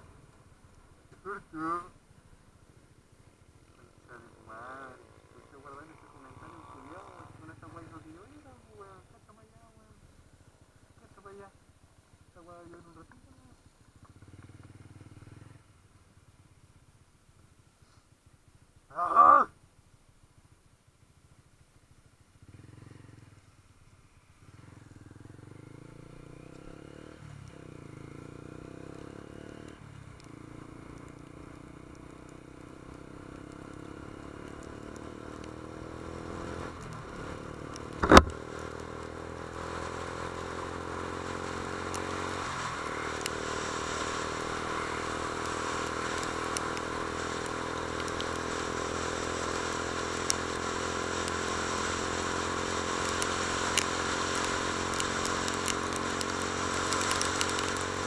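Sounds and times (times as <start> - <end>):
motorcycle engine shifting gears: 24.4 - 58.0
sharp knock: 38.0 - 38.3.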